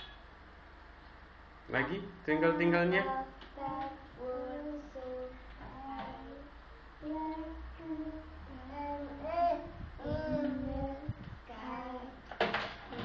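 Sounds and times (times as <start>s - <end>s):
toddler singing: 3.0s - 12.2s.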